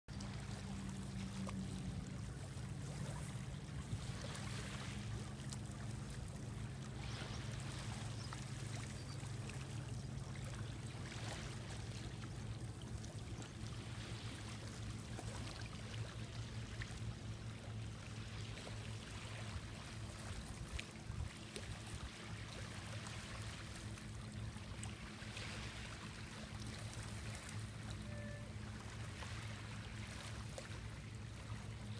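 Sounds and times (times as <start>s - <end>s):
small waves lapping at shore: 0.1s - 31.9s
steady low hum: 0.1s - 31.9s.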